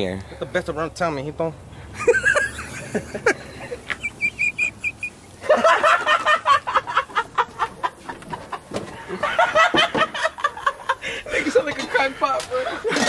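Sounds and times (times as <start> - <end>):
people laughing hard: 2.0 - 13.0
small bird chirping: 3.9 - 5.4.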